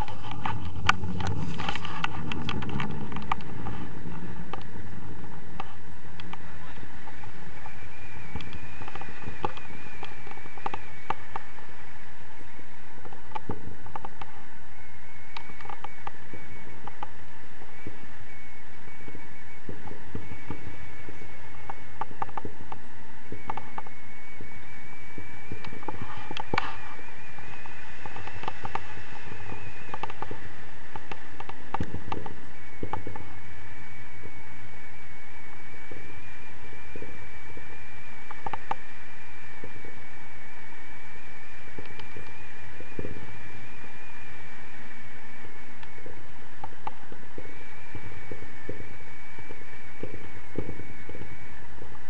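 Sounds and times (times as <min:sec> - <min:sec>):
scattered clicks: 0:00.0 - 0:11.8, 0:12.4 - 0:14.4, 0:15.3 - 0:17.8, 0:19.6 - 0:24.0, 0:25.4 - 0:33.5, 0:38.1 - 0:39.2, 0:41.6 - 0:52.0
thin wavering high tone: 0:00.0 - 0:52.0
wind buffeting camera: 0:00.0 - 0:52.0.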